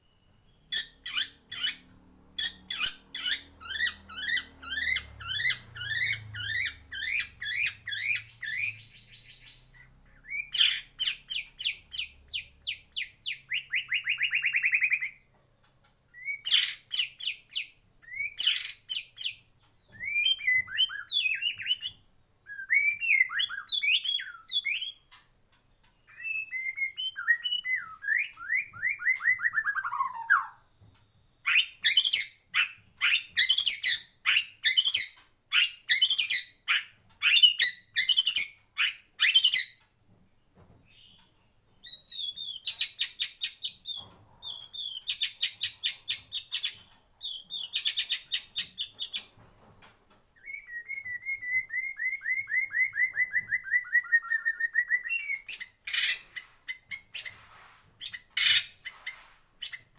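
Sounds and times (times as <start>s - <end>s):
songbird singing with trills: 2.4s - 15.2s.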